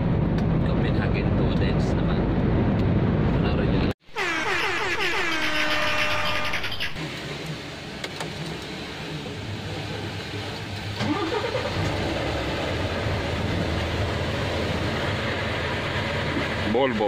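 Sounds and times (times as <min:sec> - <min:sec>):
diesel truck engine starting: 0:02.5 - 0:17.0
diesel engine idling: 0:04.2 - 0:17.0.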